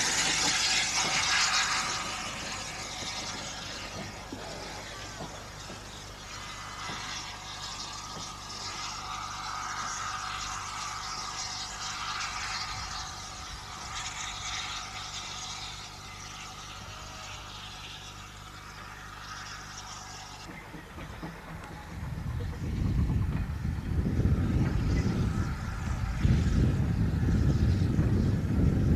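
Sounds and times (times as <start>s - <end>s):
steady low hum: 0.0s - 28.9s
steam locomotive chuffing: 0.0s - 28.9s.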